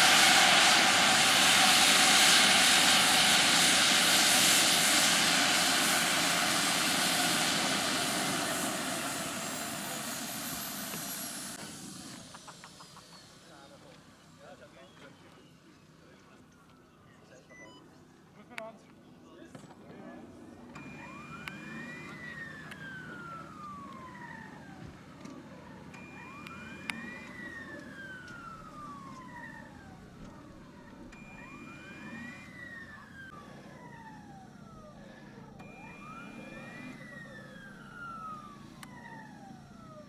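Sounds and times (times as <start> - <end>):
wailing siren: 0.0 - 11.6, 20.8 - 40.0.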